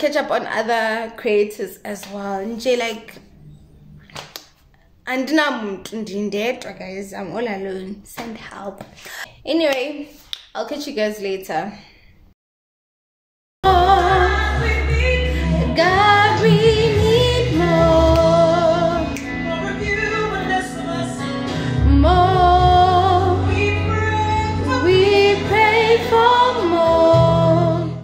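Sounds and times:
steady bass line: 0:13.6 - 0:28.0
woman singing gospel: 0:13.6 - 0:28.0.

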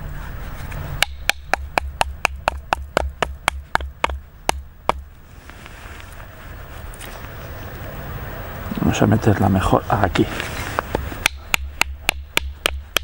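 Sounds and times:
stick knocking on knife spine: 0:01.0 - 0:05.0.

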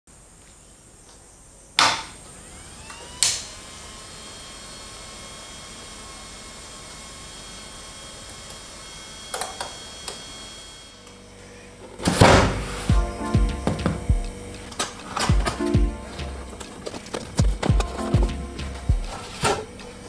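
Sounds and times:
faint rising tone: 0:12.6 - 0:16.8.

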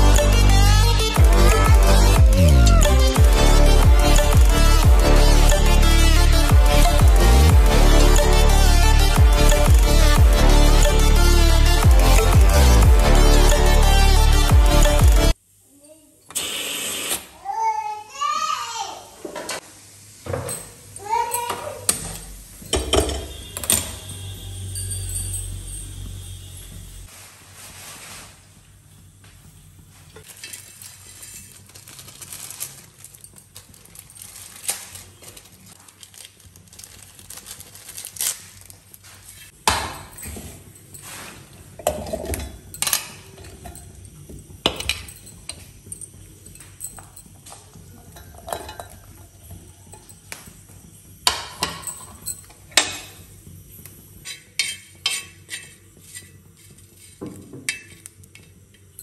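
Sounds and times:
metal kitchenware clinking: 0:20.3 - 0:26.5, 0:39.7 - 0:50.3, 0:51.3 - 0:53.2, 0:54.2 - 0:59.0.

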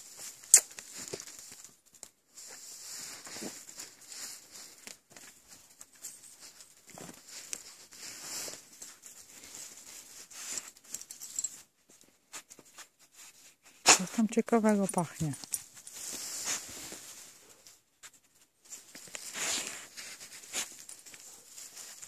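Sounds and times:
soft crackles: 0:00.0 - 0:22.0
footsteps in grass and leaves: 0:15.0 - 0:17.6.

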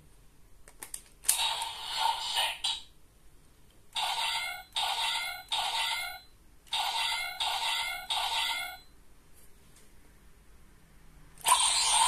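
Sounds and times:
toy electronic blasts: 0:04.0 - 0:08.8, 0:11.4 - 0:12.0.

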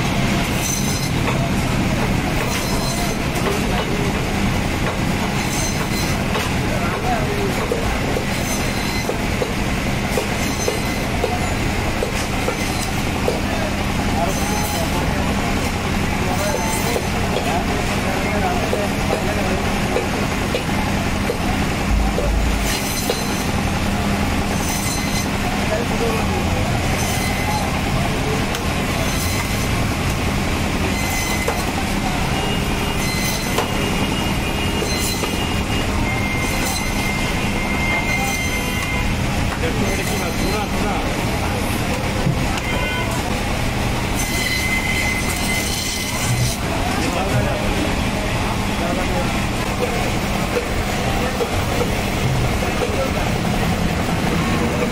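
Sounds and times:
band saw cutting: 0:00.0 - 0:54.9
band saw motor hum: 0:20.1 - 0:42.7, 0:43.3 - 0:48.0.

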